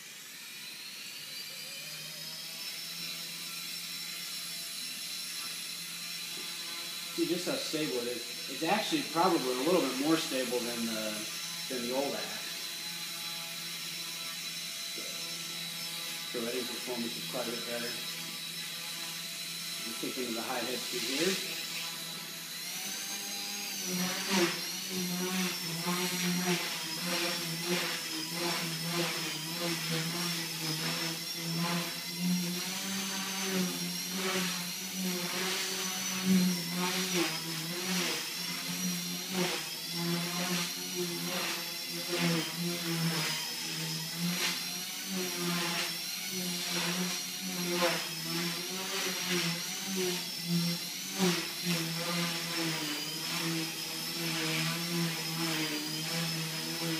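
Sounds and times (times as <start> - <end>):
rc helicopter whine: 0.0 - 56.9.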